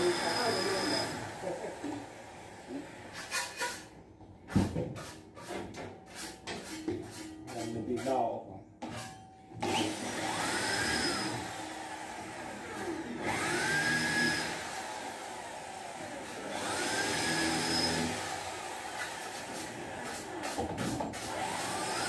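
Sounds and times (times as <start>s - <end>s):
electric drill whining: 0.0s - 3.1s, 9.6s - 20.3s, 21.3s - 22.0s.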